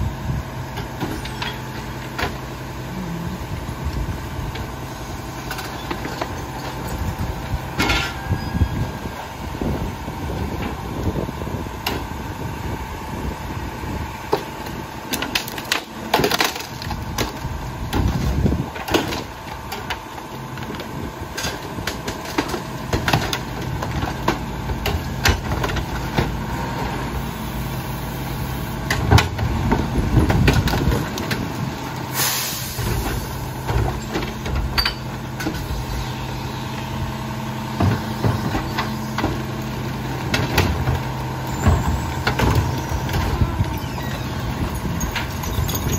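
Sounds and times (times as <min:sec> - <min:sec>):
garbage truck engine idling: 0:00.0 - 0:45.9
air hiss: 0:32.1 - 0:32.9.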